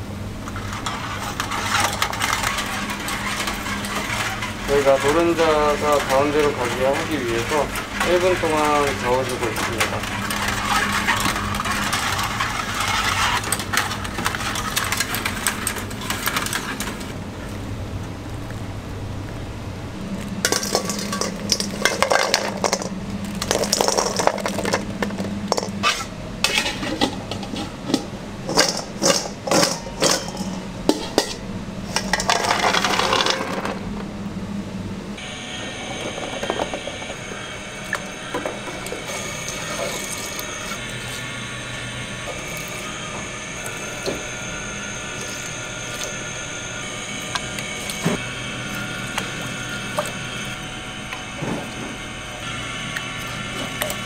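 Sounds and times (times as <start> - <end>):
kitchen hum: 0.0 - 54.0
eggs clattering in a pot: 0.4 - 17.1, 20.4 - 25.8, 26.4 - 33.8, 35.7 - 37.2.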